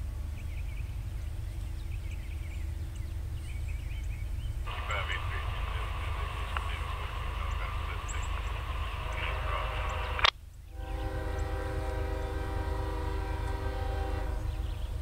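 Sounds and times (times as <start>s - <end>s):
low rumble: 0.0s - 15.0s
locomotive air horn blast: 4.7s - 15.0s.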